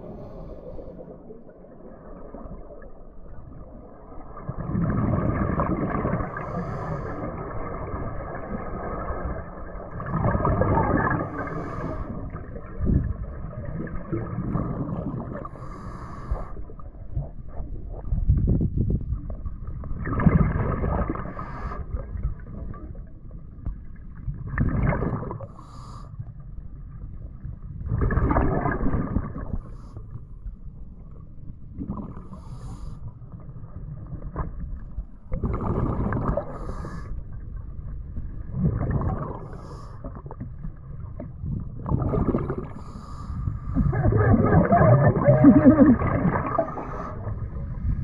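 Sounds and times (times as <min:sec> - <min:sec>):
diver breathing through regulator: 0:00.0 - 0:01.1, 0:06.3 - 0:07.4, 0:11.2 - 0:12.4, 0:15.4 - 0:16.8, 0:25.4 - 0:26.2, 0:32.2 - 0:33.2, 0:36.3 - 0:37.2, 0:39.4 - 0:40.1, 0:42.5 - 0:43.9, 0:46.5 - 0:47.6
underwater bubbling: 0:00.0 - 0:48.0.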